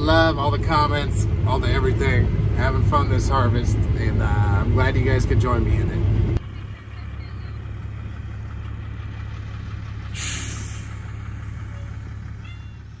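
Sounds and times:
combine harvester engine drone: 0.0s - 13.0s
short hiss: 10.1s - 11.0s.

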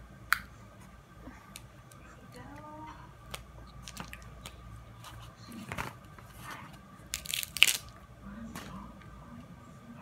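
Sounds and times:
crab shells cracking: 7.1s - 7.9s.

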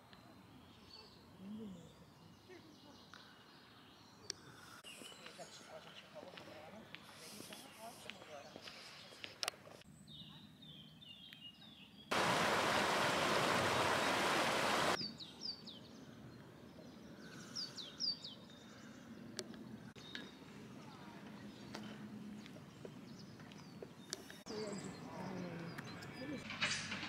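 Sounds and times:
songbirds chirping: 0.0s - 26.7s
loud rushing hiss: 12.1s - 15.0s.

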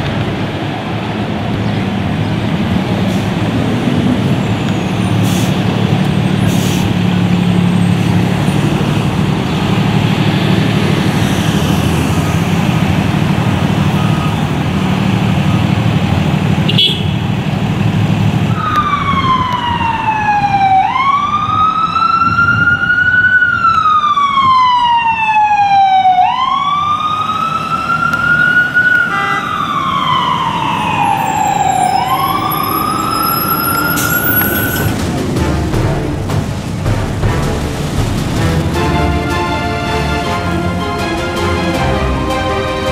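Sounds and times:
heavy vehicle engine: 0.0s - 20.0s, 27.2s - 42.9s
road noise: 0.0s - 42.9s
siren wailing: 13.4s - 15.8s, 18.5s - 35.1s.

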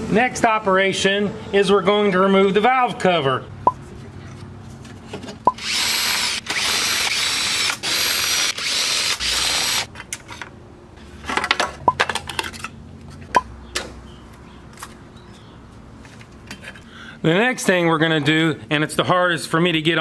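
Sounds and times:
power ratchet spinning: 5.5s - 9.9s.

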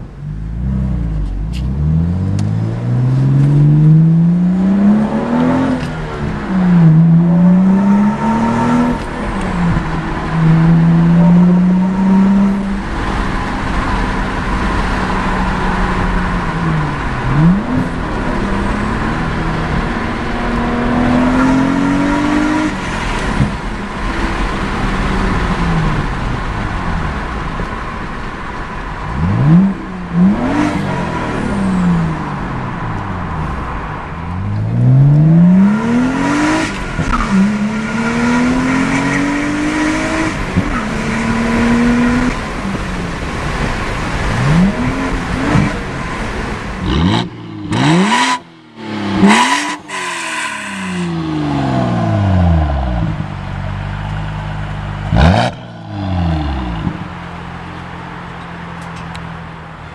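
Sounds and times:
car engine revving: 0.0s - 59.9s
car engine idling: 48.6s - 59.9s.

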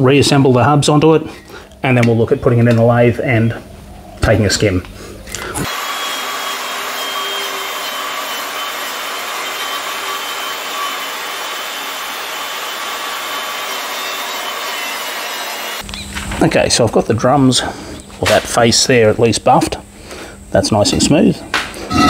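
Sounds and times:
angle grinder buffing metal: 5.7s - 15.8s.

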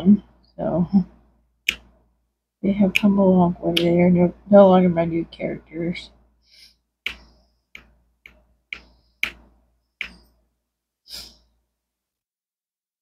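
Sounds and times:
soft breathy sound: 6.4s - 7.7s, 11.1s - 11.6s
plastic clicks and taps: 7.1s - 10.3s.

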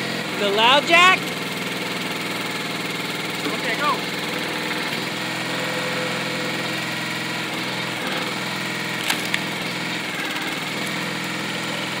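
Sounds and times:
small engine running: 0.0s - 12.0s
wood splitting cracks: 8.9s - 9.8s.

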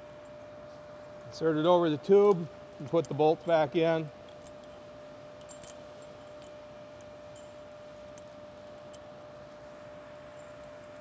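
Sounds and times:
steady background hum: 0.0s - 11.0s
faint metallic clinks: 4.2s - 9.3s, 10.3s - 10.9s.

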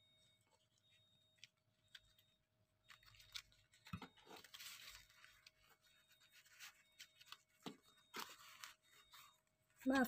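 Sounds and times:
banana leaf crinkling and rustling: 0.3s - 10.0s.

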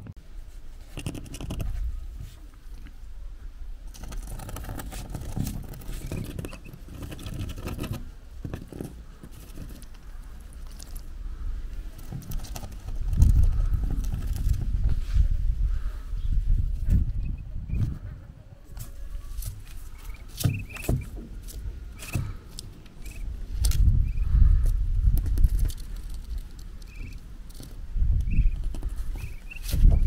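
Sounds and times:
ducklings' bills tapping on cardboard: 4.0s - 9.8s, 19.5s - 22.4s.

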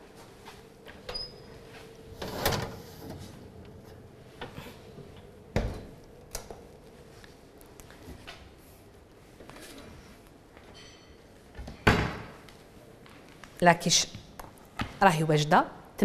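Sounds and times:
oven door opening and shutting: 1.0s - 6.7s.

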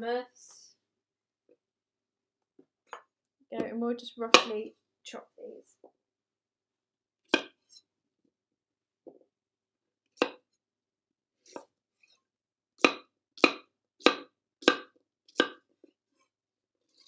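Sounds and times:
knife chopping on cutting board: 7.3s - 7.7s, 10.2s - 10.5s, 12.8s - 15.7s.

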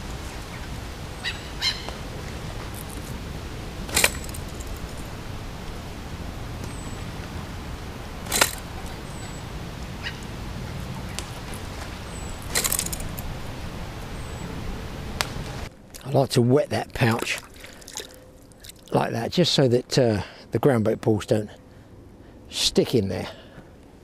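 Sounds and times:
catapult snapping: 3.9s - 5.0s, 8.2s - 8.9s.

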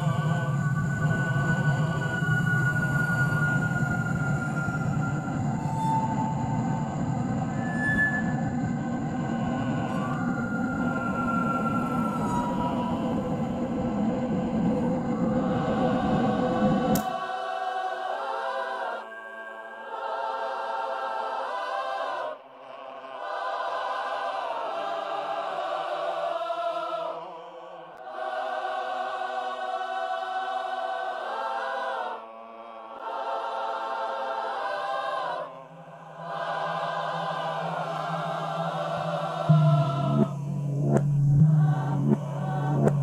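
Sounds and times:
low rumbling noise: 0.0s - 17.0s, 35.5s - 43.0s
wordless choir sustained chords: 0.0s - 43.0s.

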